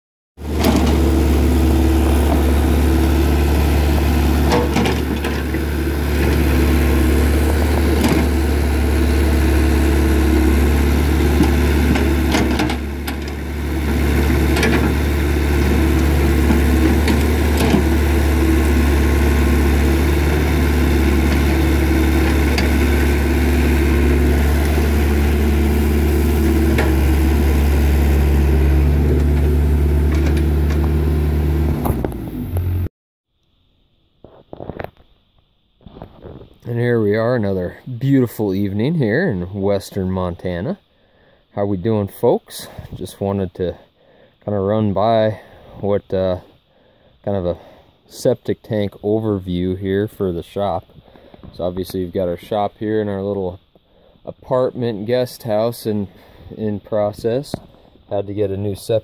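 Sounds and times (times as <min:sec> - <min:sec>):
excavator diesel engine running: 0:00.4 - 0:32.9
excavator digging dirt: 0:00.4 - 0:32.9.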